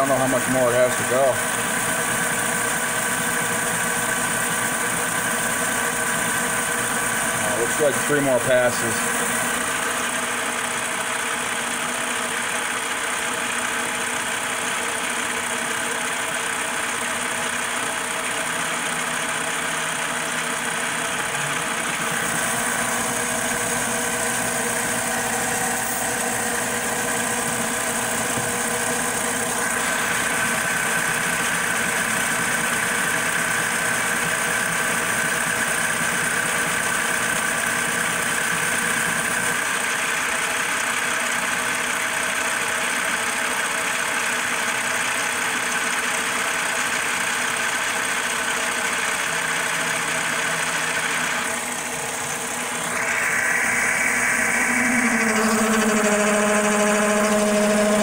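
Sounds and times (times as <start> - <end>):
lathe cutting metal: 0.0 - 10.5, 21.3 - 39.6, 50.0 - 58.0
high steady tone: 52.2 - 58.0.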